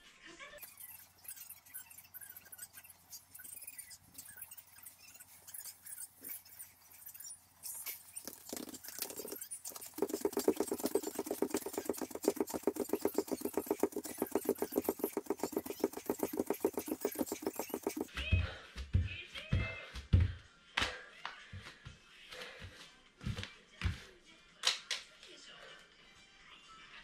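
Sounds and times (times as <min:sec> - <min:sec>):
bare feet on foam mat: 0:00.9 - 0:24.1.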